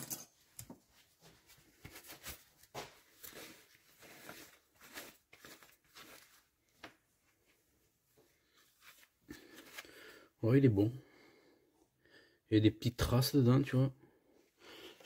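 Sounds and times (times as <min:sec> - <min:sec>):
faint clicks and rustles of parts: 0:00.0 - 0:09.9.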